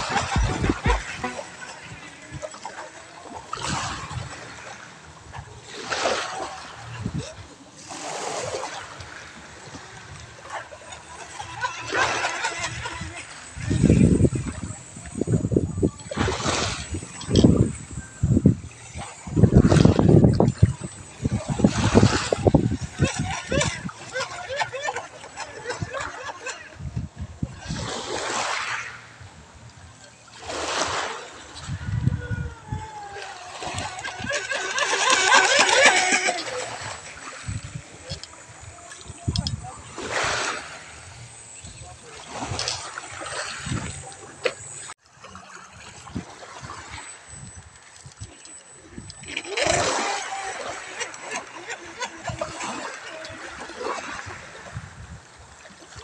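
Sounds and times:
low thumps: 0:00.0 - 0:01.5
waves washing over pebbles: 0:00.0 - 0:05.1, 0:27.6 - 0:29.0, 0:34.6 - 0:41.3
waves lapping on pebbles: 0:00.0 - 0:24.0, 0:27.6 - 0:29.2, 0:30.3 - 0:31.8, 0:33.3 - 0:56.0.

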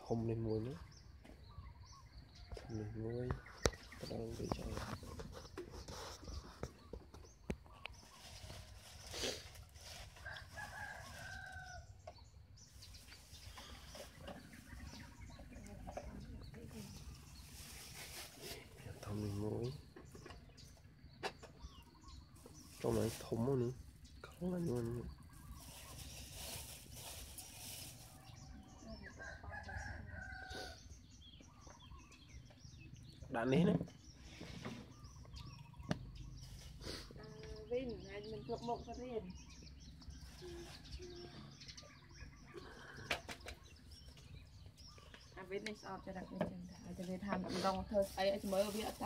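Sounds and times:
noisy rustle: 0:25.4 - 0:28.4.

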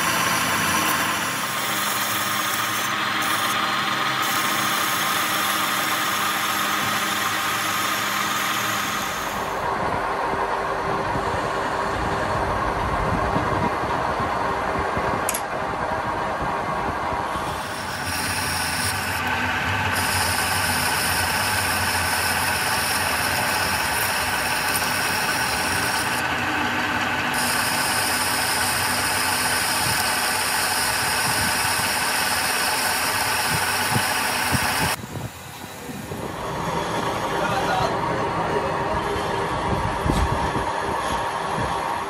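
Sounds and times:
metal lathe cutting metal: 0:00.0 - 0:09.7, 0:17.2 - 0:39.6.

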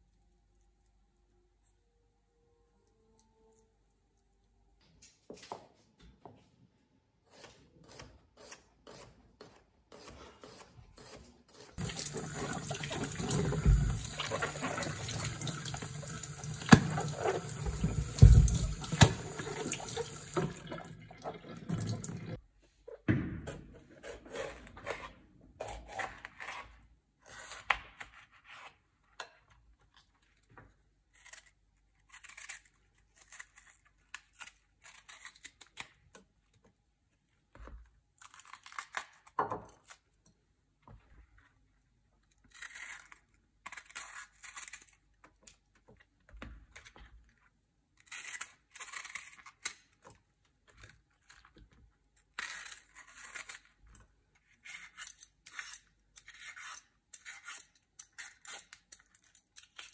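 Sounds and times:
tap running into a sink: 0:11.8 - 0:22.3.

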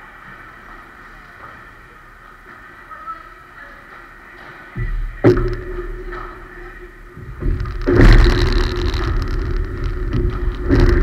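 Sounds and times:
dense low rumble: 0:05.2 - 0:11.0.

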